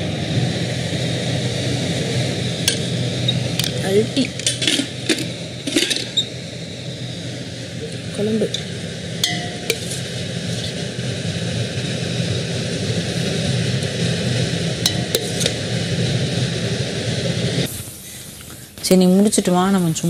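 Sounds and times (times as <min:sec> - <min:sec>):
exhaust fan whirring: 0:00.0 - 0:20.0
spoon clinking on a plate: 0:09.2 - 0:09.8.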